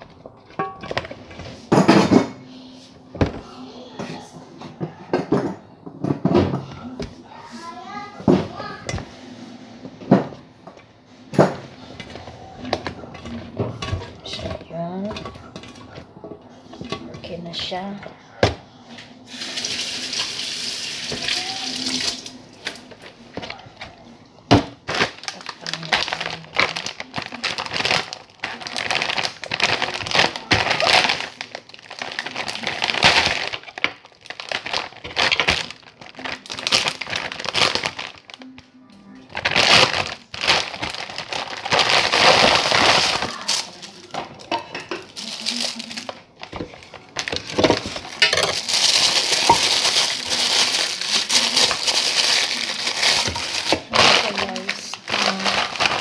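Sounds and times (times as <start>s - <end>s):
plastic packaging crinkling: 24.7s - 56.0s.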